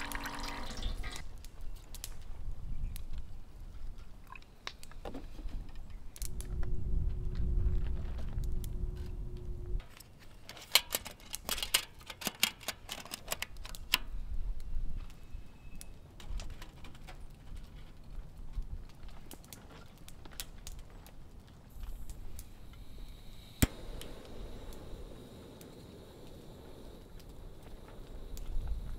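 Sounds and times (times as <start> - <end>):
low hum: 6.2 - 9.8.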